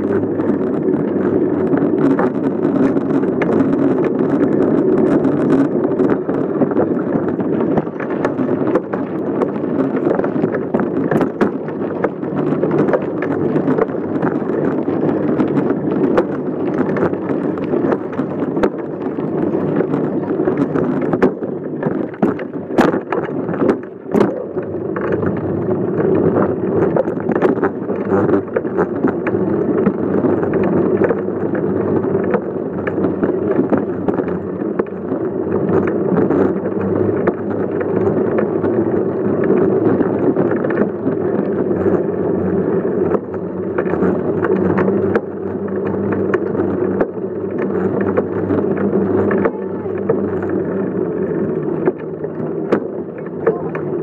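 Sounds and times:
bicycle rolling over pavement: 0.0s - 54.0s.

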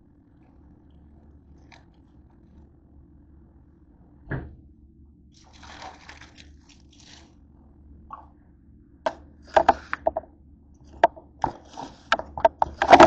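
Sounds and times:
plastic bag rustling and crinkling: 5.4s - 7.3s.

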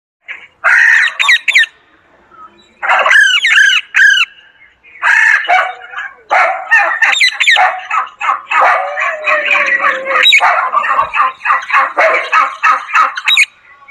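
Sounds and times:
parakeet squawking: 2.8s - 4.3s, 5.0s - 13.5s.

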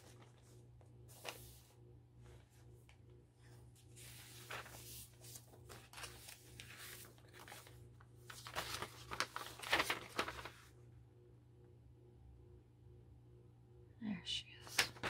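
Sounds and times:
paper rustling and crinkling: 0.0s - 1.7s, 2.3s - 10.7s, 14.6s - 15.0s
low steady hum: 0.0s - 15.0s.

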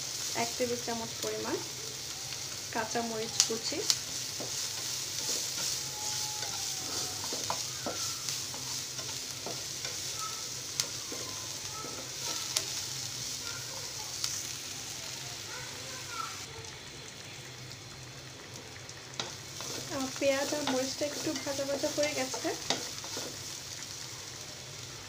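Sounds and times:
onion sizzling in hot oil: 0.0s - 25.0s
spatula scraping pan: 3.1s - 13.4s, 19.2s - 23.6s
spatula tapping pan: 3.4s - 12.8s, 19.2s - 23.4s.

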